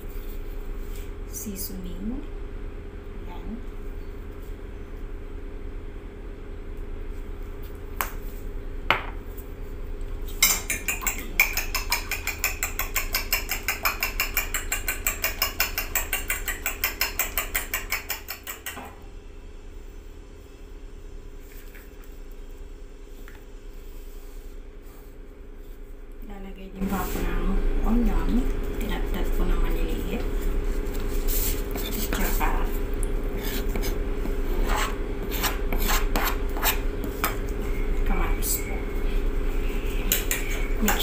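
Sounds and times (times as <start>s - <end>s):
fork clinking against bowl: 10.4s - 18.8s
fork tapping bowl: 10.4s - 18.9s, 40.1s - 41.0s.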